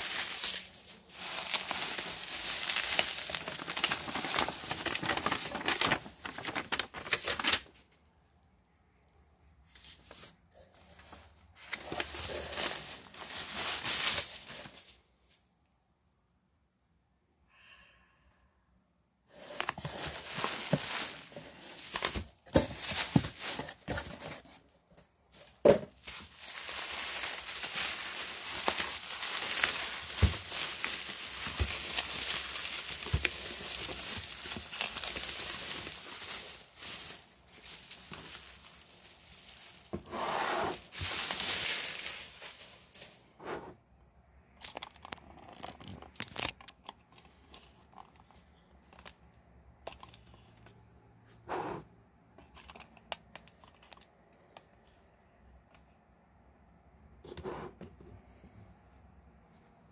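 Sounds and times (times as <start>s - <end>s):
bubble wrap crinkling: 0.0s - 15.4s, 19.3s - 43.3s.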